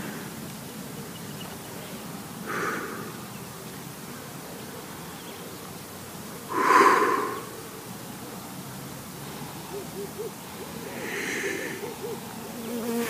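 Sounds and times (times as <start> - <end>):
person breathing: 2.5 - 3.2, 6.5 - 7.7, 9.2 - 12.0.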